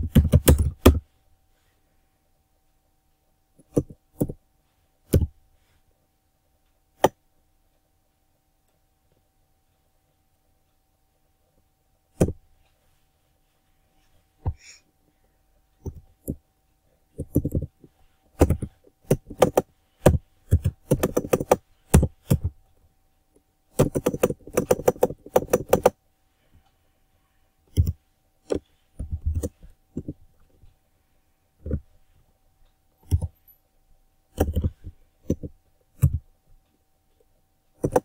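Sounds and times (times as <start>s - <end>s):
typing on computer keyboard: 0.0s - 1.0s, 3.6s - 4.4s, 17.1s - 22.6s, 23.7s - 26.0s, 27.7s - 30.2s, 33.0s - 33.4s, 34.3s - 36.2s, 37.8s - 38.0s
faint steady hum: 0.0s - 38.0s.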